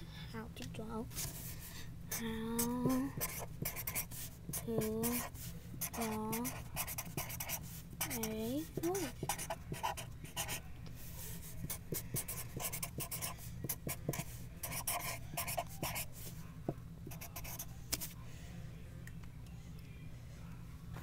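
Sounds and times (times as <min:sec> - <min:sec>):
steady low hum: 0:00.0 - 0:21.0
pen scratching on paper: 0:02.1 - 0:16.3, 0:17.1 - 0:18.1.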